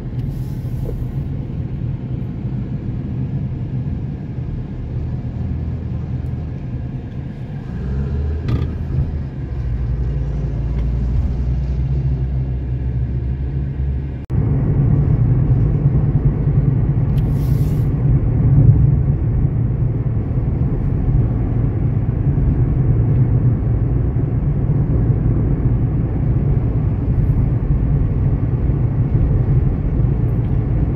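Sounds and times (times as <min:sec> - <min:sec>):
car interior road rumble: 0:00.0 - 0:30.9
short hiss: 0:00.2 - 0:01.2, 0:17.2 - 0:17.9.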